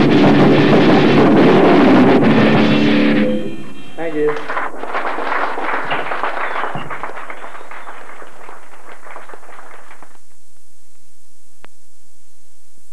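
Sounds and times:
live punk band: 0:00.0 - 0:03.7
tape hiss: 0:00.0 - 0:12.9.

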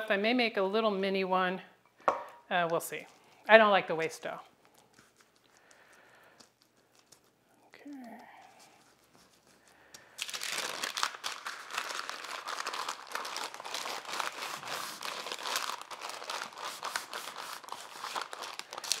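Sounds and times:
parchment paper crinkling: 0:04.6 - 0:19.0.

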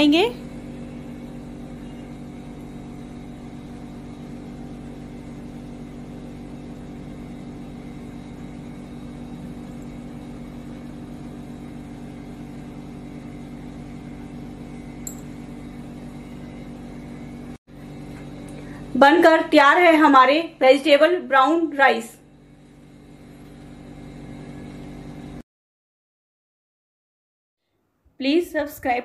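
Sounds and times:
low machine hum: 0:00.0 - 0:25.4.

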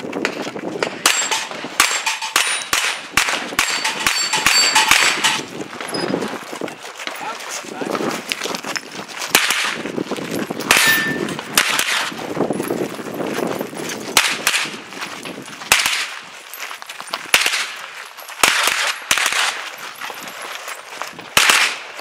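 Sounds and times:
gunshots: 0:00.8 - 0:05.5, 0:09.3 - 0:09.8, 0:10.6 - 0:12.2, 0:14.2 - 0:14.8, 0:15.7 - 0:16.2, 0:17.3 - 0:17.8, 0:18.4 - 0:19.6, 0:21.3 - 0:22.0
short metallic ring: 0:03.7 - 0:06.0, 0:10.8 - 0:11.3.

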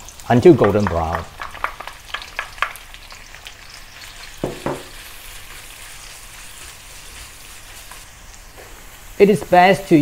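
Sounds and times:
onions sizzling in a pan: 0:00.0 - 0:10.0
wooden spatula striking a pan: 0:04.4 - 0:05.0.

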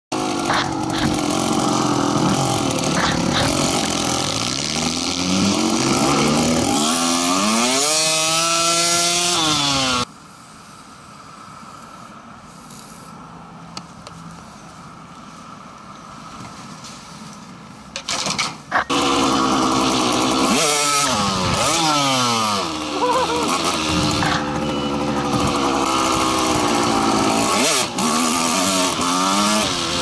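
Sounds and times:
dirt bike engine revving: 0:00.1 - 0:10.1, 0:18.7 - 0:30.0
faint hiss: 0:10.1 - 0:18.0.

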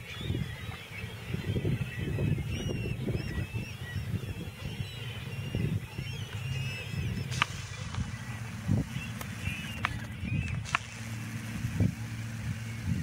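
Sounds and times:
gulls and shorebirds calling: 0:00.0 - 0:13.0
low rumble: 0:01.5 - 0:13.0
sharp click: 0:07.3 - 0:08.1.

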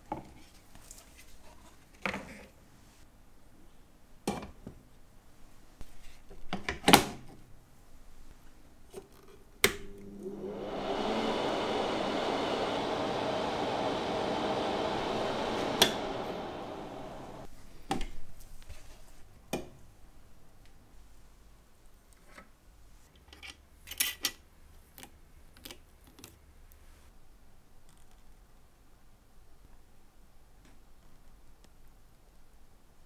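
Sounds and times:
dryer fan blowing hiss: 0:10.0 - 0:17.5.

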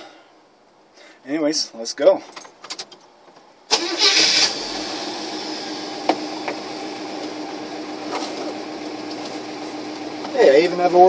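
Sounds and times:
truck engine idling: 0:04.7 - 0:10.3.

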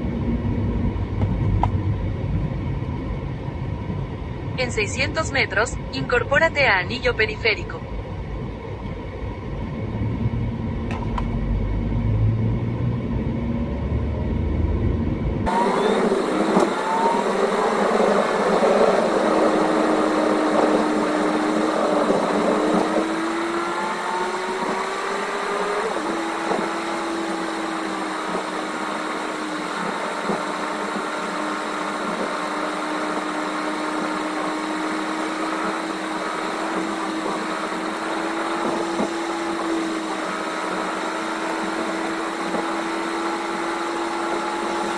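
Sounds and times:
low rumble: 0:00.0 - 0:15.5
car engine and road noise: 0:00.0 - 0:44.9.

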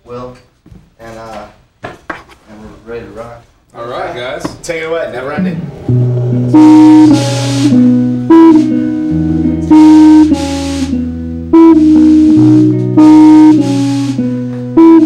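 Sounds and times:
bass guitar: 0:05.2 - 0:15.0
drum and cymbal accents: 0:05.2 - 0:15.0
electric guitars playing chords: 0:05.3 - 0:15.0.

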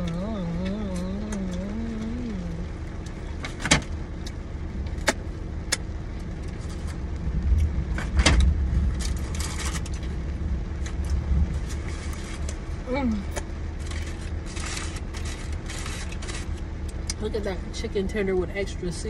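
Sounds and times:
person humming: 0:00.0 - 0:02.8
low rumble in a car: 0:00.0 - 0:19.0
paper wrapping crinkling: 0:13.8 - 0:16.6.

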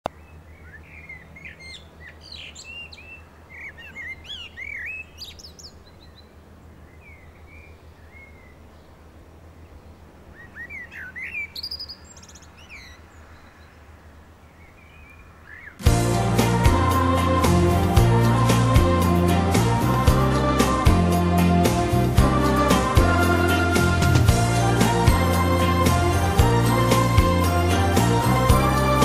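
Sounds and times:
small birds chirping: 0:00.1 - 0:09.0, 0:09.6 - 0:15.9.

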